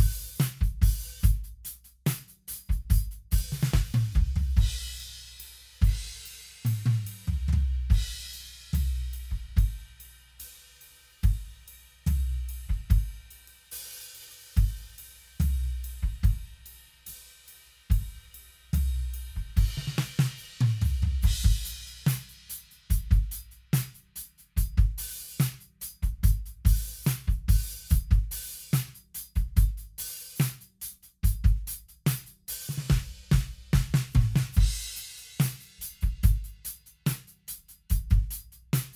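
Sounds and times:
drum fills: 0:00.0 - 0:38.9
drum kit groove: 0:00.0 - 0:38.9.

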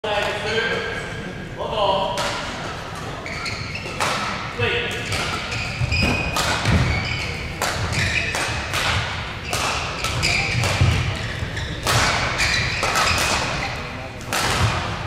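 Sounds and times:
shoe squeaks on court: 0:03.2 - 0:04.1, 0:05.4 - 0:08.5, 0:09.4 - 0:13.9
rackets striking shuttlecock: 0:03.8 - 0:15.0.

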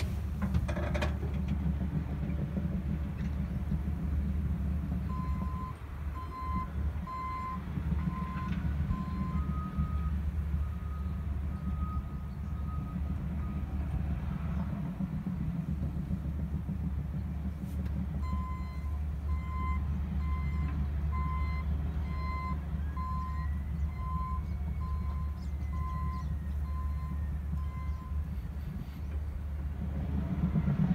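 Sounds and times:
diesel engines rumbling: 0:00.0 - 0:30.9
backup alarms beeping: 0:05.1 - 0:13.7, 0:18.2 - 0:28.4.

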